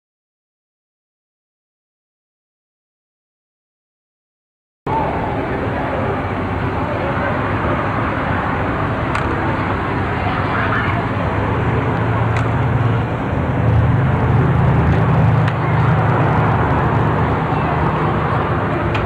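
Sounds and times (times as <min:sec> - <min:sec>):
street noise: 0:04.9 - 0:19.0
truck engine rumbling: 0:04.9 - 0:19.0.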